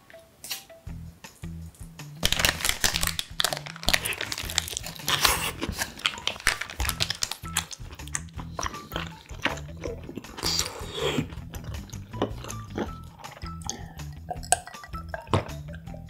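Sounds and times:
paper wrapper crinkling: 0:02.2 - 0:10.9.

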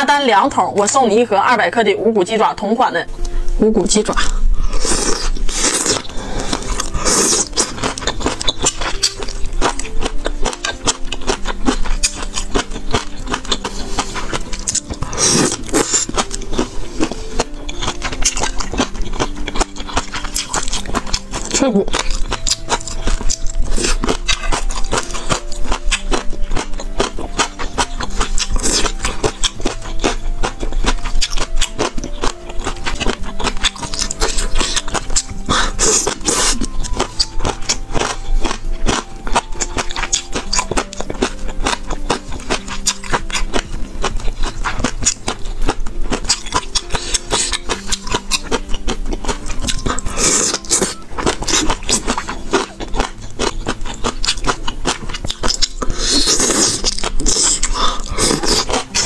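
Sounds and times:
background music with held notes: 0:00.0 - 0:59.0
chewing with mouth clicks: 0:04.0 - 0:59.0.

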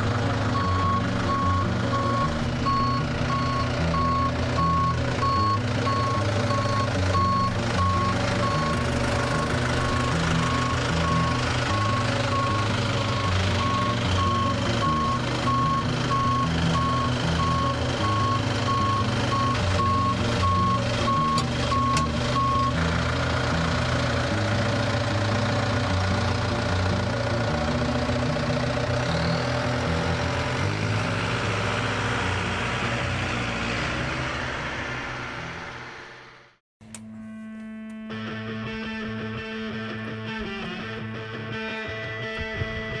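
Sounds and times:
tractor engine running: 0:00.0 - 0:38.7
reversing alarm beeping: 0:00.6 - 0:22.8.

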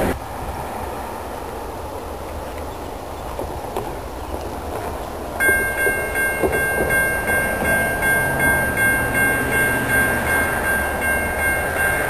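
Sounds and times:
crossing warning bell clanging: 0:05.4 - 0:12.0.

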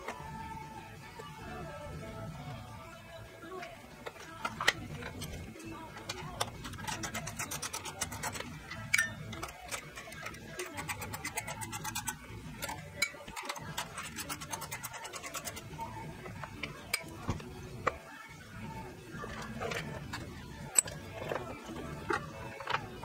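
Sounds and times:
socket ratchet clicking: 0:06.0 - 0:17.2.

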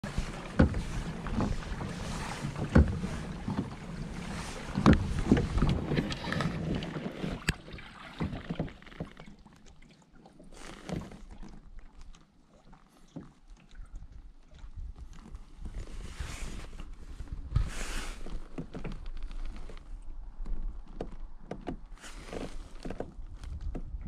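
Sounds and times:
wind on microphone: 0:00.0 - 0:07.6, 0:13.8 - 0:18.3, 0:23.2 - 0:24.0
water against kayak hull: 0:00.0 - 0:24.0.

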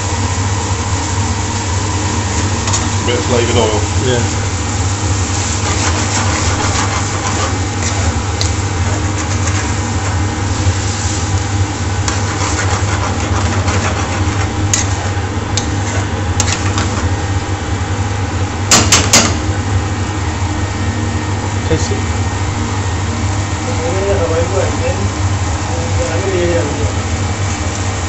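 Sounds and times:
sauce sizzling in frying pan: 0:00.0 - 0:20.3
kitchen ventilation hum: 0:00.0 - 0:28.0.

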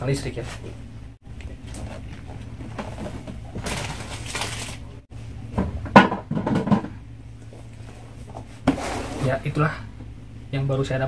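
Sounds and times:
cardboard scraping rustle: 0:08.2 - 0:09.6.

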